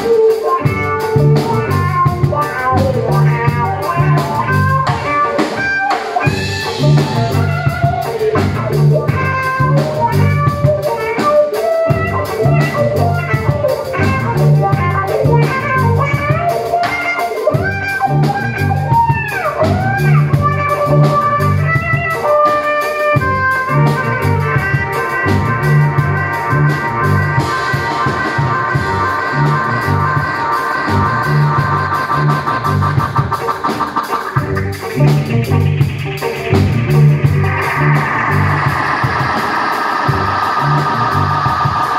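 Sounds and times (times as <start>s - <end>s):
drum kit: 0.0s - 41.9s
violin through effects pedals: 0.0s - 41.9s
low repeating bass line: 0.6s - 5.0s, 6.3s - 10.8s, 11.9s - 16.4s, 17.6s - 22.0s, 23.2s - 41.9s.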